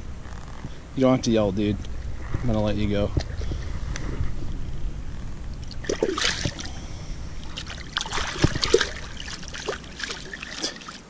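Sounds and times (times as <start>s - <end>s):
fish splashing in shallow water: 5.6s - 11.0s.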